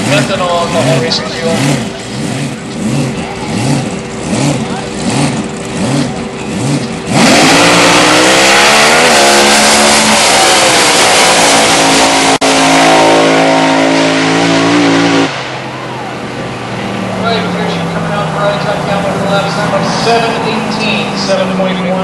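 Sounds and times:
dragster engine accelerating: 0:00.0 - 0:22.0.

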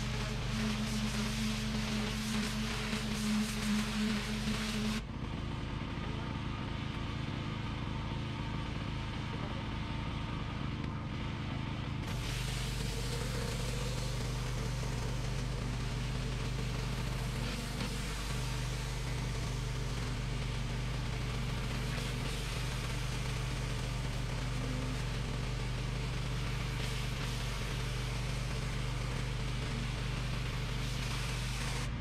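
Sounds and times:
pressure washer engine running: 0:00.0 - 0:32.0
water spray hissing: 0:12.1 - 0:32.0.

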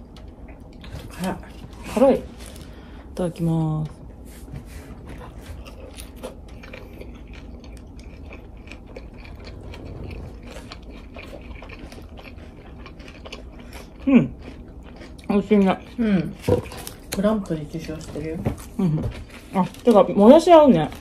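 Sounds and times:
person chewing: 0:04.8 - 0:20.2.

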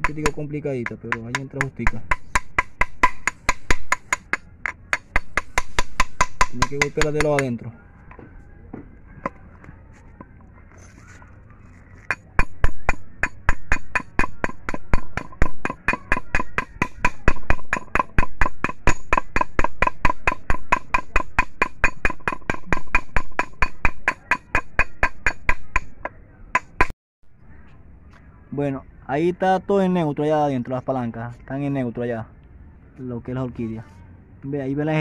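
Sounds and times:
hammer tapping metal on metal: 0:00.0 - 0:07.6, 0:12.1 - 0:26.9.

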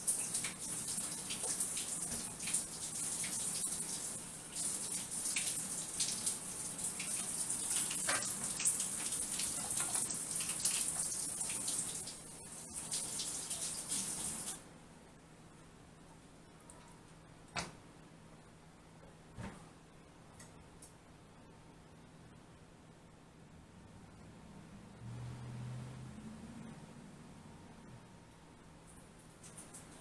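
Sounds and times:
tap running into a sink: 0:07.9 - 0:11.1.

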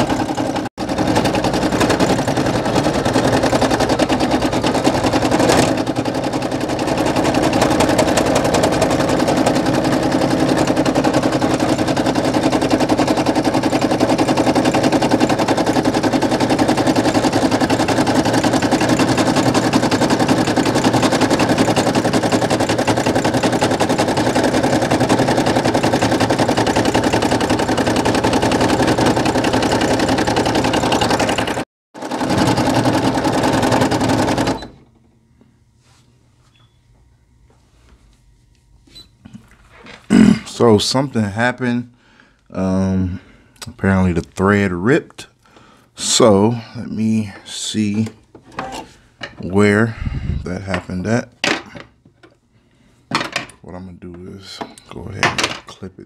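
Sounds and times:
embroidery machine stitching: 0:00.0 - 0:35.0.

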